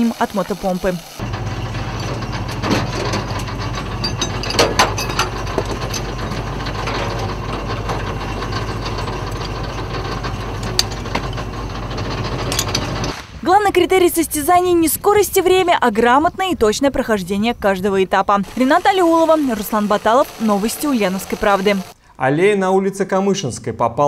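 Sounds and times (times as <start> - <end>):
fire engine motor running: 0.2 - 13.2, 18.4 - 22.0
metallic clicks and clanks of hoses: 1.7 - 13.2.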